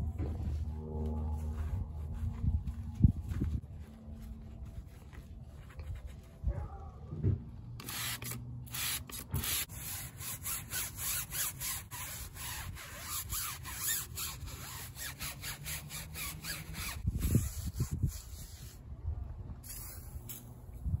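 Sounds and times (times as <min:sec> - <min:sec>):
wind rumble on microphone: 0:00.0 - 0:07.6, 0:16.4 - 0:21.0
brush scrubbing tyre: 0:07.8 - 0:18.8.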